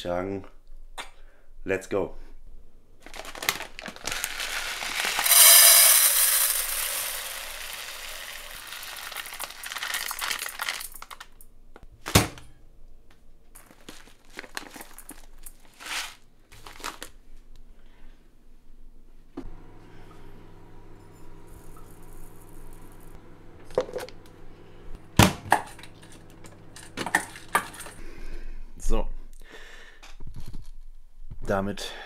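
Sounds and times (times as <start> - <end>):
plastic bag crinkling: 3.0 - 11.4, 13.6 - 17.4
rice grains pouring into pot: 4.0 - 11.0.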